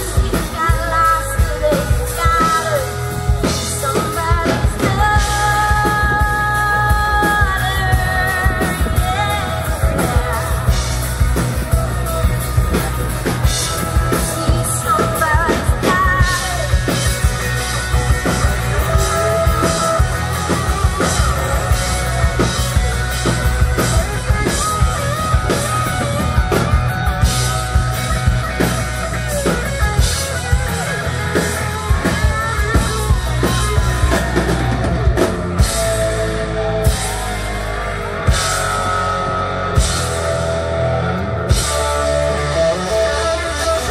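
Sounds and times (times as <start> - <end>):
woman singing: 0.0 - 11.3, 14.0 - 17.2
drum kit rock beat: 0.0 - 43.9
electric guitar: 0.0 - 43.9.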